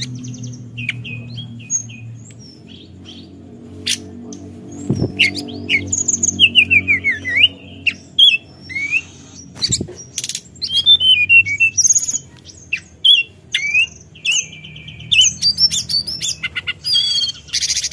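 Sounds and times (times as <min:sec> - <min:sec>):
bird singing whistled notes: 0:04.7 - 0:17.9.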